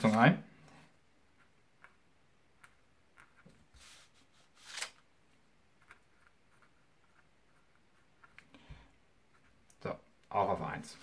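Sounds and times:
pen scratching on paper: 0:05.8 - 0:08.4.

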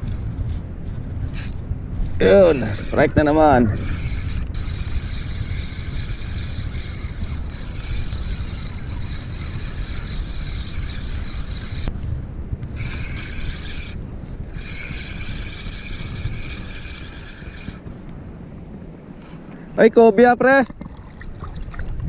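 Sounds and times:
wind buffeting microphone: 0:00.0 - 0:22.0
fishing reel whining: 0:01.3 - 0:12.0, 0:12.7 - 0:17.8.

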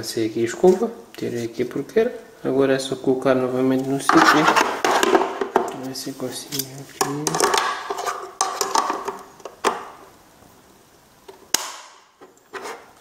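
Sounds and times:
plastic knocks and clicks: 0:07.0 - 0:09.9
sharp plastic snaps: 0:11.3 - 0:12.4.

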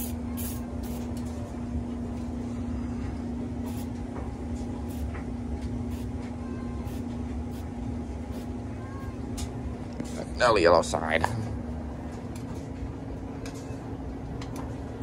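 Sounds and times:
aerosol spray bursts: 0:00.0 - 0:01.0, 0:03.7 - 0:03.9.

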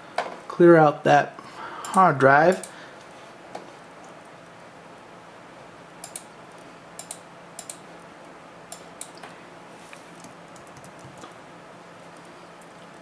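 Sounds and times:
steady low hum: 0:00.0 - 0:13.0
computer mouse clicking: 0:01.8 - 0:02.7, 0:06.0 - 0:07.8, 0:10.1 - 0:11.4
keyboard typing: 0:10.1 - 0:11.4.

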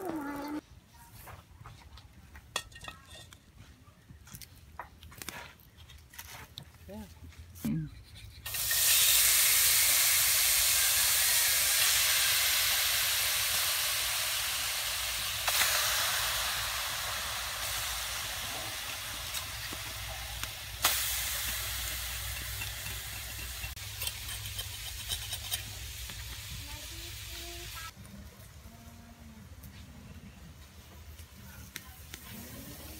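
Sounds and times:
fat sizzling in a wok: 0:08.4 - 0:28.0.

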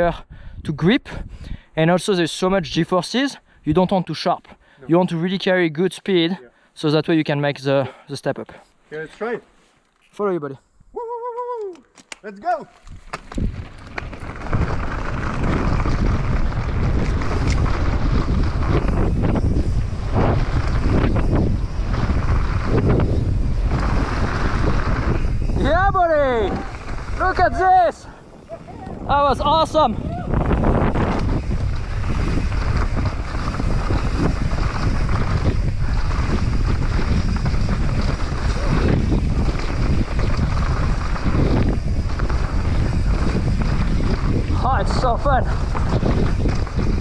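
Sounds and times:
wind rushing over microphone: 0:00.0 - 0:03.0, 0:12.8 - 0:47.0
bike clicks and rattles: 0:11.4 - 0:27.6, 0:28.2 - 0:47.0
bike tyres rolling on dirt: 0:12.8 - 0:47.0.

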